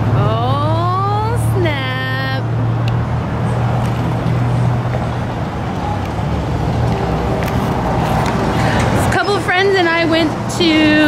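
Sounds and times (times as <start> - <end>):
car engine humming: 0.0 - 11.0
road noise: 0.0 - 11.0.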